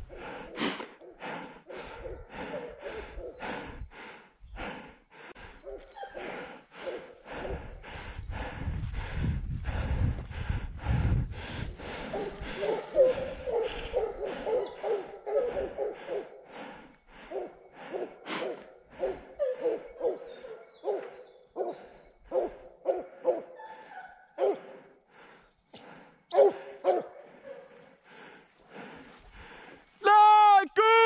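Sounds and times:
hounds baying: 0.0 - 3.8, 5.4 - 8.0, 11.8 - 25.0, 26.3 - 28.4.

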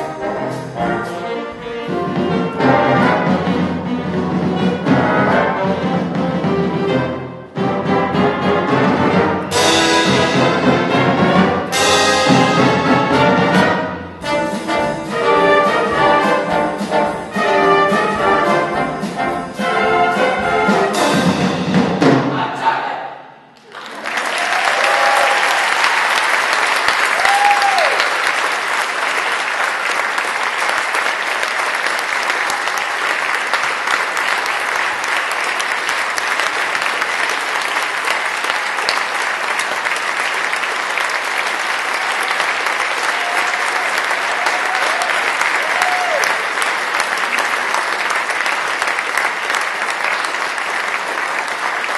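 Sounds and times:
audience applauding: 23.6 - 51.9
short cheers: 23.9 - 25.8, 27.1 - 28.2, 43.0 - 46.4.

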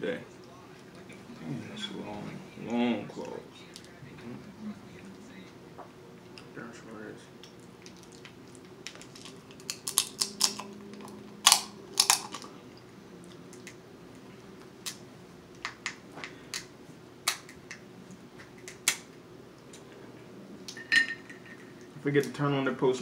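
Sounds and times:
crab shells cracking by hand: 7.4 - 12.5, 15.6 - 17.8, 18.4 - 19.8.

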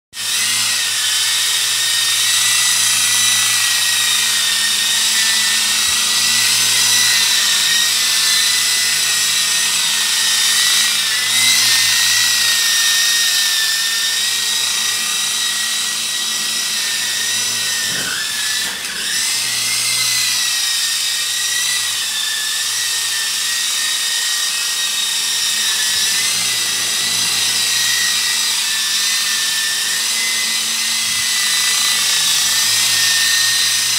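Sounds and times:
rc helicopter motor whine: 0.2 - 33.9.

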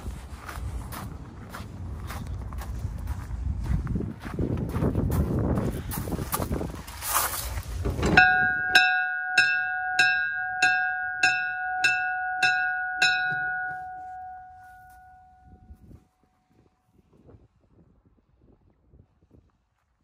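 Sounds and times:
rustling noise: 0.0 - 8.2
locomotive bell ringing: 8.0 - 15.8.

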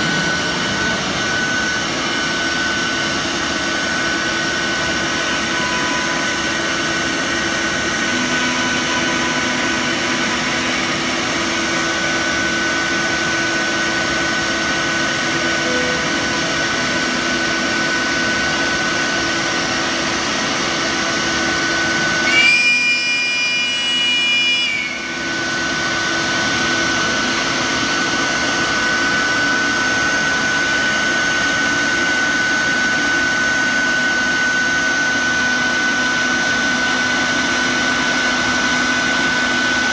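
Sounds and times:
higher whining tones: 0.0 - 31.2
router spindle whine cutting: 0.0 - 39.9.

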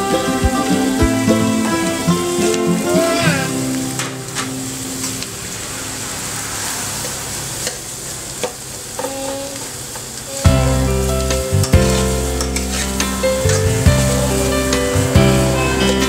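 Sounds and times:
loud music: 0.0 - 5.0, 10.5 - 16.0
food sizzling in a wok: 0.1 - 16.0
metal spatula scraping a pan: 11.8 - 14.9.

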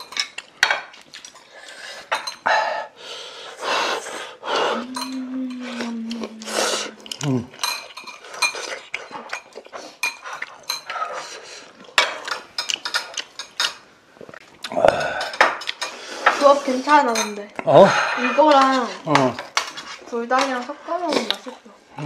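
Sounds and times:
utensils clinking on dishes: 0.0 - 2.5, 4.8 - 5.8, 7.1 - 13.8, 15.0 - 21.5.

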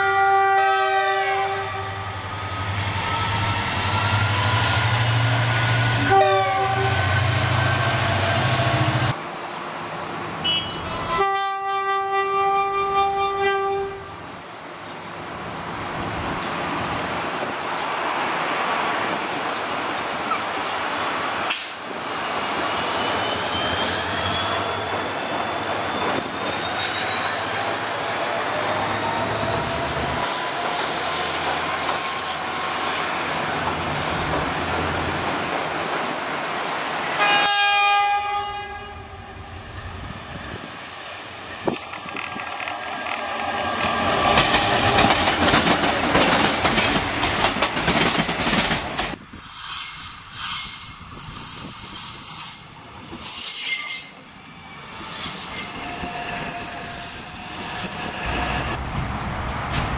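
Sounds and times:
train horn blasts: 0.0 - 2.2, 6.0 - 7.3, 10.4 - 14.2, 37.2 - 39.4
train rumble: 24.9 - 53.3, 54.7 - 59.9.

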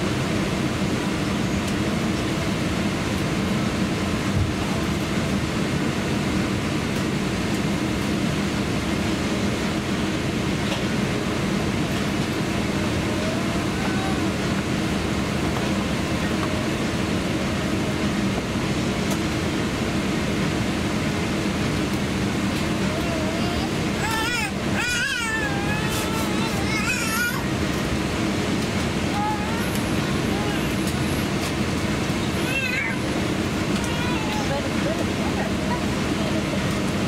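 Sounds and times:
rush of air in cabin: 0.0 - 37.0.

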